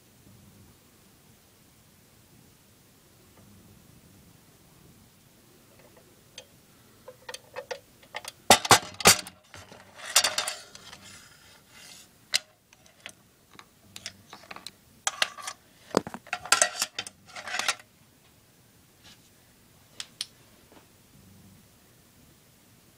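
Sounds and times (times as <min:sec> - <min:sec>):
clicks and knocks against metal: 0:07.1 - 0:11.2, 0:11.8 - 0:17.8
cables rustling: 0:07.1 - 0:17.8.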